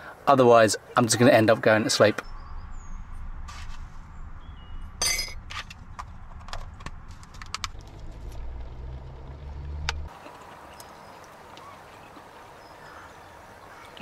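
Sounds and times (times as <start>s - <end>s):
low hum: 2.3s - 10.1s.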